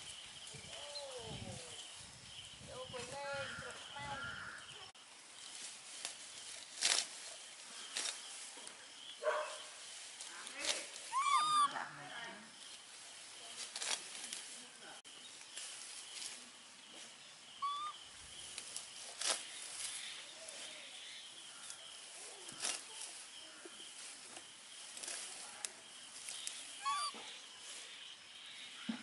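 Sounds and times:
short rising squeaky calls: 0:11.1 - 0:11.8, 0:17.6 - 0:18.0, 0:26.7 - 0:27.4.

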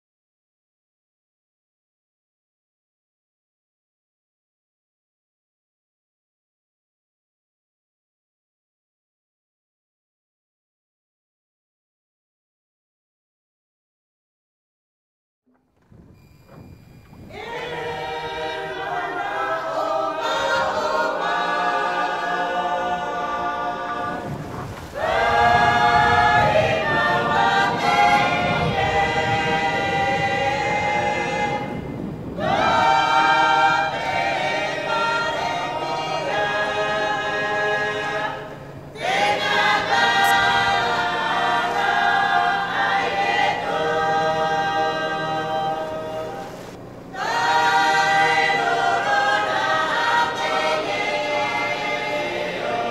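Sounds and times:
choir singing: 0:16.6 - 0:52.9.

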